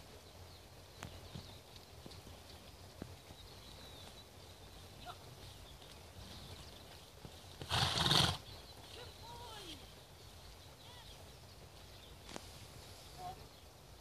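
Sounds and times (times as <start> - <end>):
horse snorting: 7.6 - 8.5.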